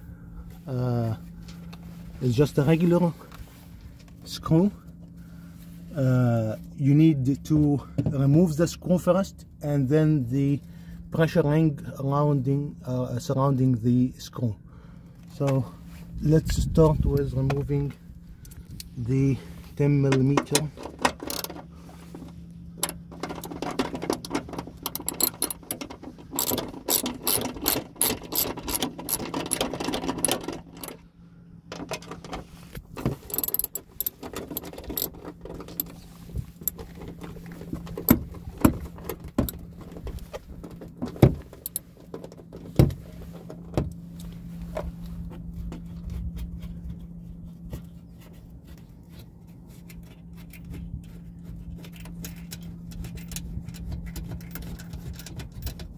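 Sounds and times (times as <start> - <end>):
steady low hum: 0.0 - 55.9
tool and parts clicking and knocking: 20.1 - 31.0, 31.7 - 44.0, 51.8 - 55.9
socket ratchet clicking: 21.2 - 21.5, 22.8 - 31.0, 33.3 - 35.1.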